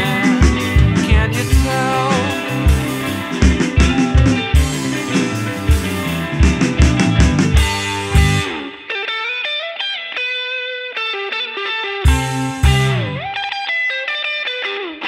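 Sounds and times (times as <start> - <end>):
steady drum beat: 0.0 - 8.5, 12.1 - 13.2
rock guitar: 0.0 - 15.0.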